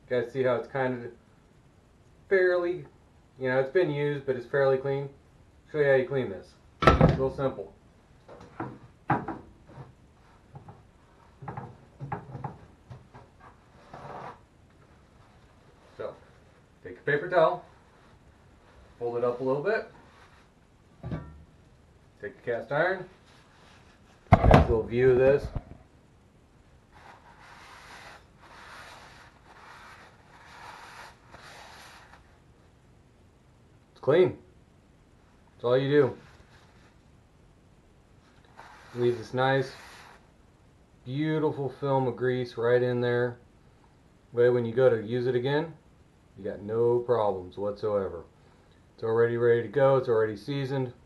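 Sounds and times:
paper towel rubbing a skillet: 13.4s - 16.7s, 26.9s - 32.4s, 38.2s - 40.3s.

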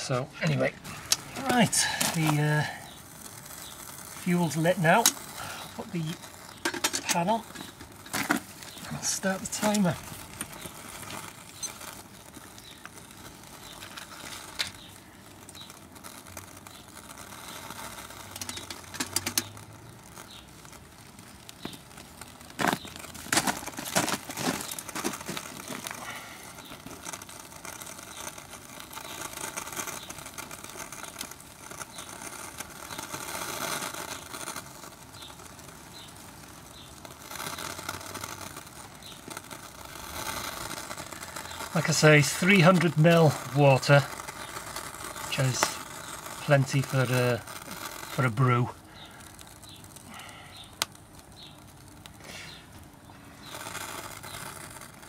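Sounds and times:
sharp clicks: 0.9s - 55.0s.

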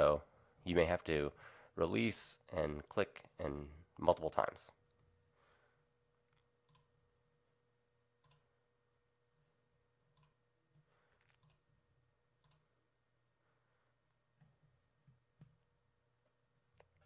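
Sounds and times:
computer mouse clicks: 6.6s - 6.9s, 8.2s - 8.5s, 10.2s - 10.4s, 11.3s - 11.6s, 12.4s - 12.6s.

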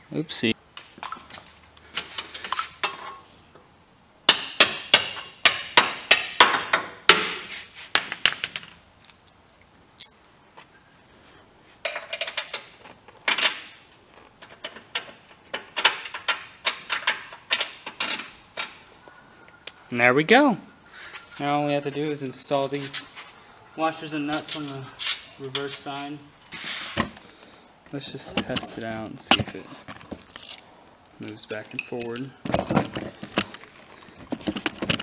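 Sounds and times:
metal bolts clinking on steel: 8.3s - 10.3s, 11.8s - 13.8s, 31.2s - 33.7s.

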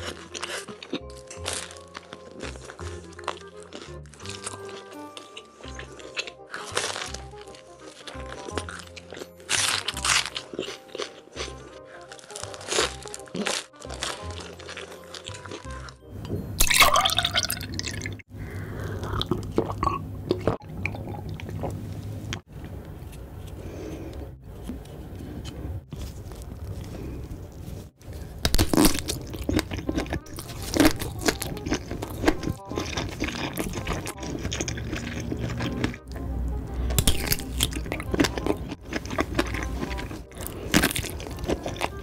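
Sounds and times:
chewing crusty bread: 0.0s - 16.0s, 17.0s - 42.0s
background music: 0.0s - 21.2s, 23.6s - 42.0s
slurping juice: 28.1s - 42.0s.

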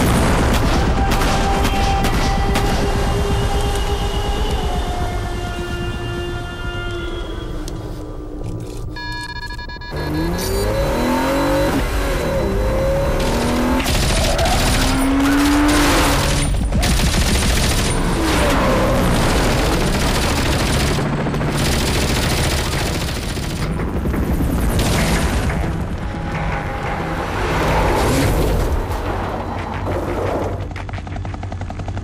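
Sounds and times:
car engine revving hard: 10.0s - 16.4s
rapid automatic gunfire: 13.1s - 25.5s.

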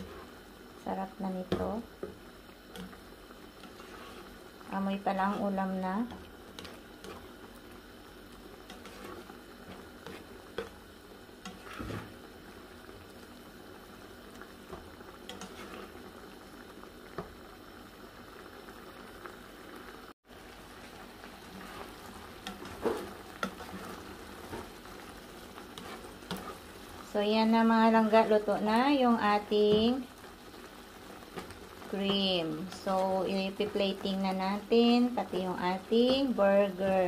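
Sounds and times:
sauce bubbling in a frying pan: 0.0s - 37.0s
utensil stirring and scraping: 2.7s - 4.5s, 5.1s - 7.6s, 8.3s - 12.2s, 14.7s - 16.0s, 21.5s - 27.0s.

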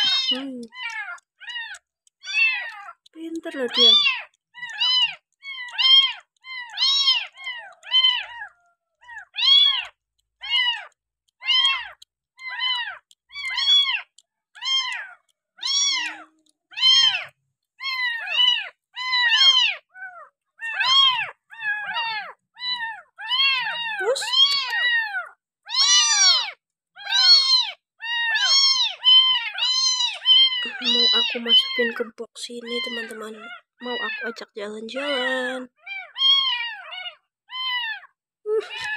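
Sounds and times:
kitten mewing: 0.0s - 8.4s, 21.9s - 25.1s, 25.7s - 32.0s, 38.6s - 38.9s.

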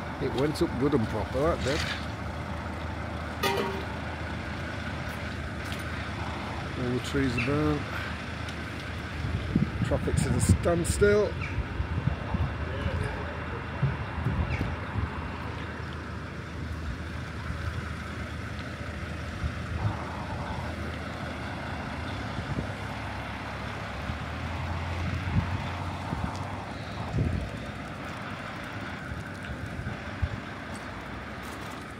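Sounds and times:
large vehicle engine idling: 0.0s - 31.9s
street traffic: 0.0s - 31.9s
sharp knocks: 3.4s - 4.0s.

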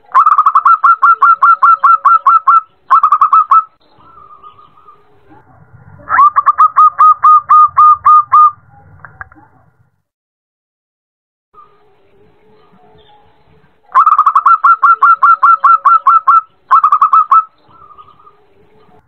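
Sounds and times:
dove cooing: 0.1s - 8.6s, 13.9s - 19.0s.

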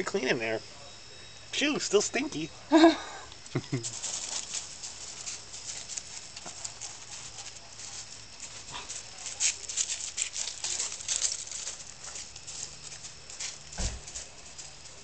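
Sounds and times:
dog paws crunching on gravel: 3.7s - 15.0s.

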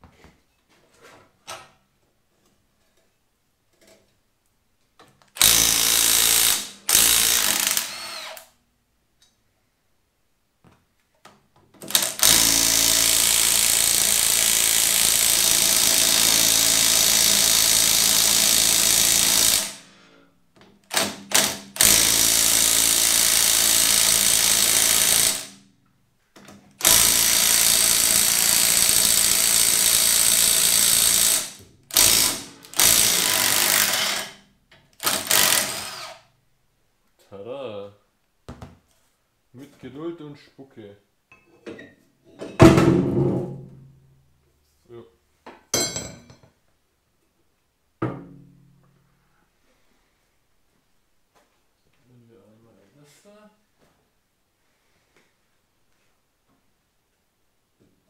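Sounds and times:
handheld power tool running: 5.4s - 8.4s, 11.9s - 19.9s, 20.9s - 25.6s, 26.8s - 34.4s, 35.0s - 36.2s.

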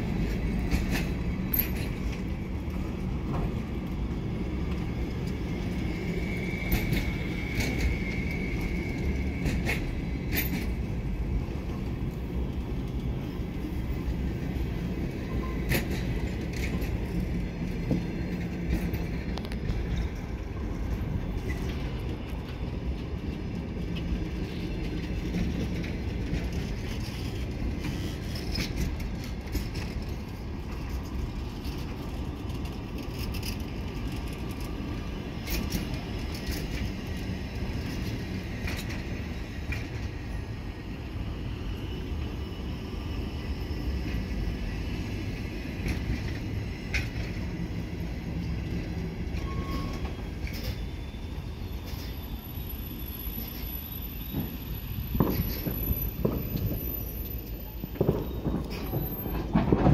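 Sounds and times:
train wheels rumbling on rail: 0.0s - 59.9s
high-pitched wheel squeal: 49.4s - 59.5s
wheels knocking on rail joints: 54.4s - 56.9s, 58.0s - 59.9s.

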